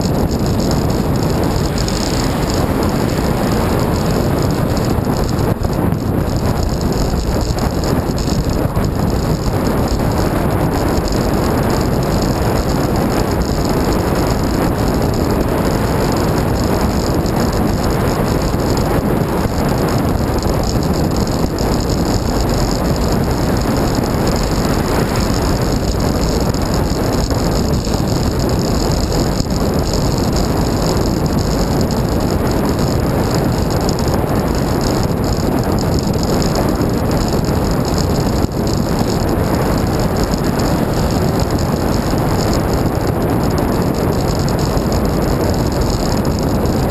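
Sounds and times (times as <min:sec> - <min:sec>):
bicycle tyre noise on road: 0:00.0 - 0:46.9
wind on microphone: 0:00.0 - 0:46.9.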